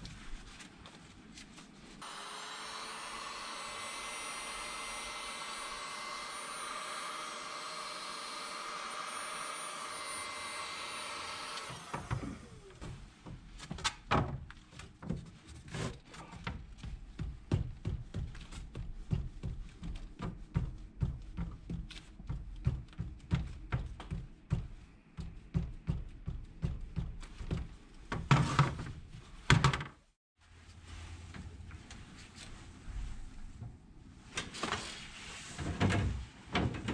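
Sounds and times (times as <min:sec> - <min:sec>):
heat gun blowing: 0:02.0 - 0:12.8.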